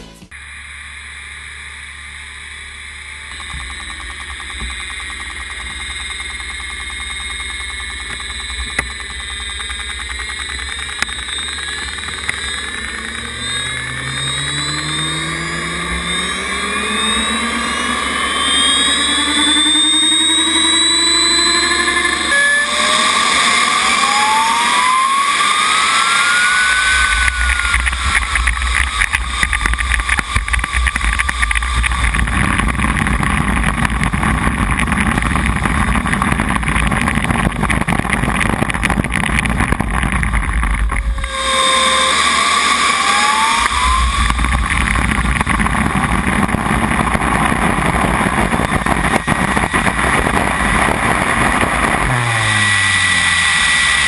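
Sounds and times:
model jet turbine whining: 0:00.2 - 0:54.0
wind buffeting microphone: 0:26.8 - 0:42.3, 0:43.7 - 0:53.0.

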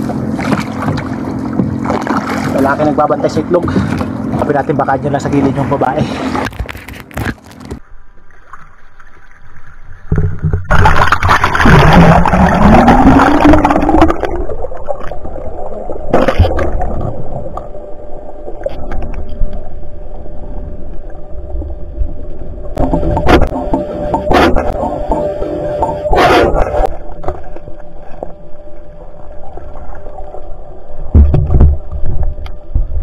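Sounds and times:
water rushing and bubbling: 0:00.0 - 0:06.6, 0:08.1 - 0:33.0
low underwater rumble: 0:07.7 - 0:33.0.

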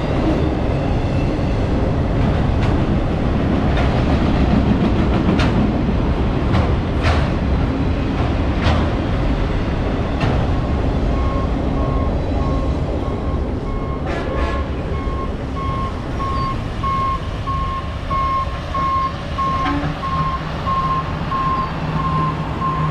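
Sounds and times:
train wheels clacking over rail joints: 0:01.8 - 0:12.5
machine alarm beeps: 0:11.1 - 0:14.1, 0:14.9 - 0:22.9.

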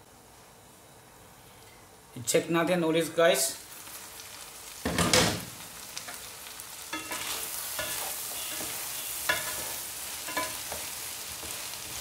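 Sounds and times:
vegetables sizzling in a wok: 0:03.3 - 0:12.0.

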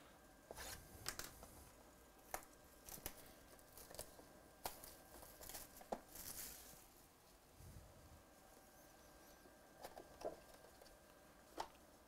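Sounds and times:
plastic film crackling: 0:00.5 - 0:01.5, 0:02.2 - 0:06.9.

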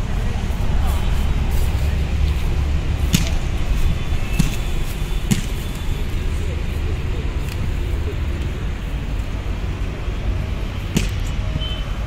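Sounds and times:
steady low rumble: 0:00.0 - 0:12.0
volleyball being hit: 0:03.0 - 0:03.5, 0:04.3 - 0:04.6, 0:05.3 - 0:05.7, 0:10.9 - 0:11.4.

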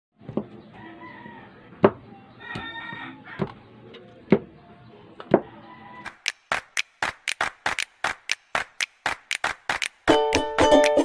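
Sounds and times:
rooster crowing: 0:00.8 - 0:01.7, 0:02.4 - 0:03.6, 0:05.4 - 0:06.2.

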